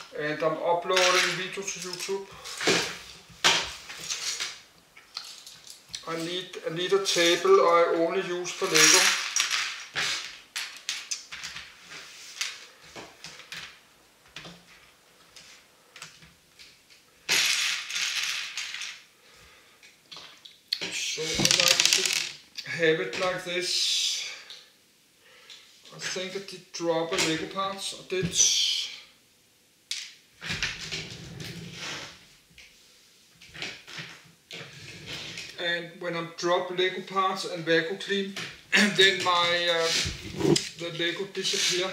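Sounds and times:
plastic pieces clicking and rattling: 8.6 - 11.7, 17.3 - 19.0, 21.3 - 22.4
scraping rustle: 39.3 - 41.9.

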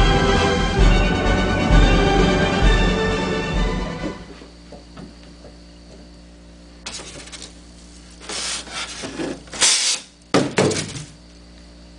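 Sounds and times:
blades scraping styrofoam: 8.2 - 10.1.

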